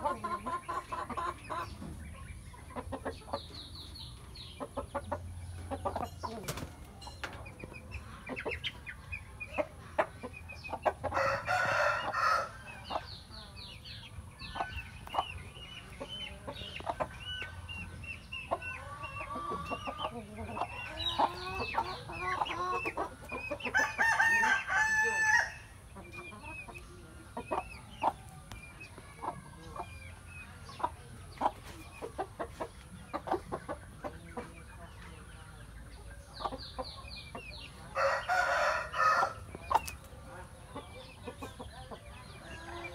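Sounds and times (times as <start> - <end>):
chickens clucking and chirping: 0.0 - 42.9
roosters crowing: 11.0 - 12.9, 18.7 - 25.8, 37.8 - 39.6.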